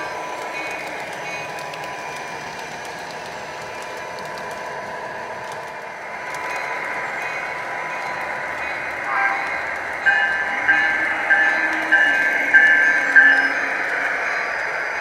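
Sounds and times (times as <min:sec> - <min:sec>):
model train motors whirring: 0:00.0 - 0:15.0.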